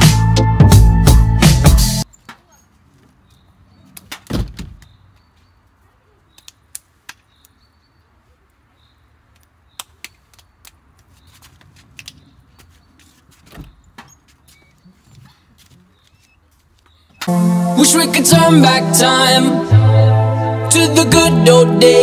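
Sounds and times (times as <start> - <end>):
plastic door thump: 4.3 - 4.9.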